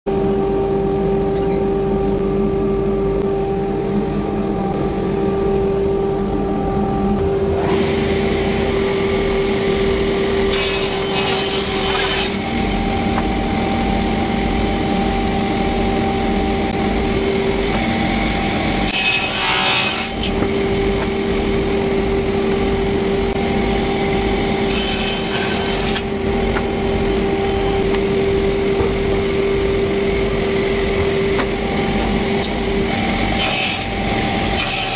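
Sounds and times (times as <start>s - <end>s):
panel saw whining: 2.7s - 34.9s
saw rasping through wood: 10.4s - 12.8s, 18.8s - 20.5s, 24.6s - 26.2s, 31.3s - 34.9s.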